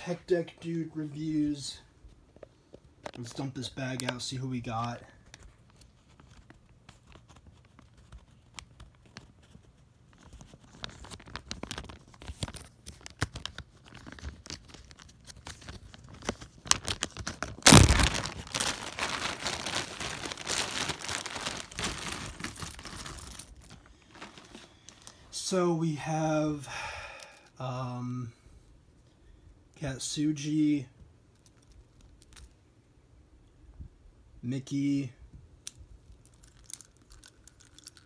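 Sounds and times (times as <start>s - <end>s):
plastic bag crinkling: 10.2s - 25.3s, 36.2s - 38.0s.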